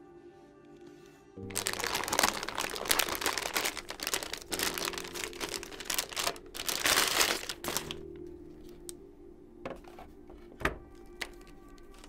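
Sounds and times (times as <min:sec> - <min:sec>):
plastic bag crinkling: 0:01.4 - 0:09.0, 0:10.2 - 0:12.0.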